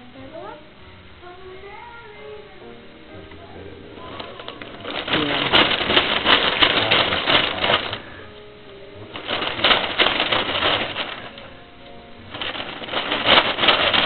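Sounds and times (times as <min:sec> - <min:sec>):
wrapping paper rustling: 0:04.0 - 0:14.0.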